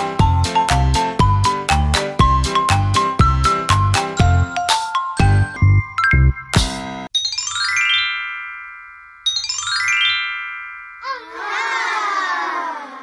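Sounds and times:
sparkling chime cascades: 7.2 - 11.5.

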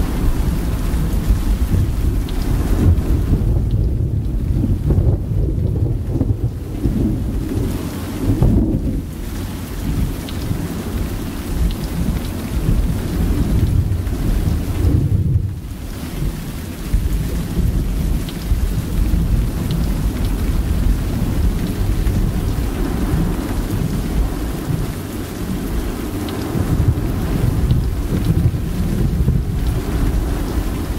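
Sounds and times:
continuous rain: 0.0 - 30.9
low rolling thunder: 0.0 - 30.9.

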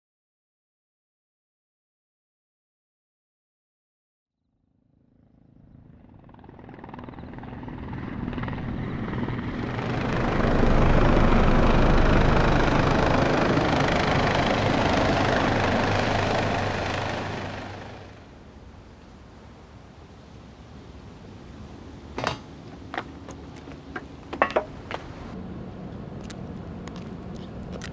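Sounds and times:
high turbine whine: 5.3 - 18.6
helicopter rotor chop: 5.4 - 18.3.

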